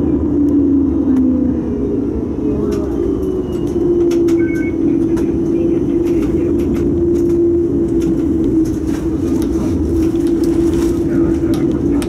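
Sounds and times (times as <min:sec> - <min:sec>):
tram motor whine: 0:00.0 - 0:12.0
wheels clattering on rails: 0:02.6 - 0:12.0.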